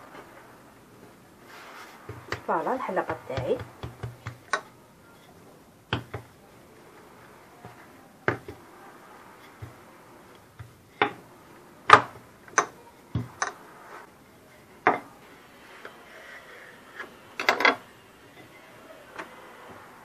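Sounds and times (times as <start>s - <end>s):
rolling pin knocking on stone: 2.0s - 4.7s, 5.9s - 6.3s, 7.6s - 8.6s, 10.6s - 11.2s.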